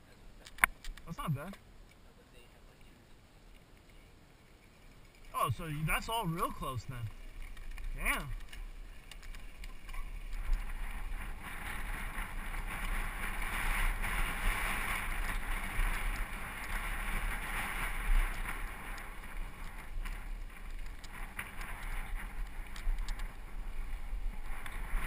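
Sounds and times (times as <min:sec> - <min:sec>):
bike tyres rolling over gravel: 0:00.5 - 0:25.0
wind rumbling on microphone: 0:04.4 - 0:25.0.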